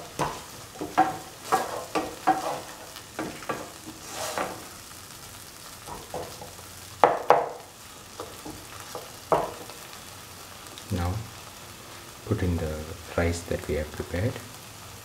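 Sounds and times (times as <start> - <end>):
metal spatula scraping a pan: 0.0 - 4.9
food sizzling in a pan: 0.0 - 15.0.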